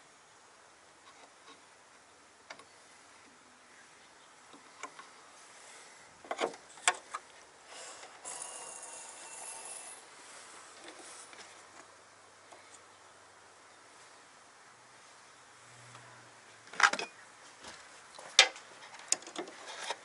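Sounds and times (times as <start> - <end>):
sharp clicks and knocks: 18.2 - 20.0
scraping and rubbing: 18.8 - 20.0.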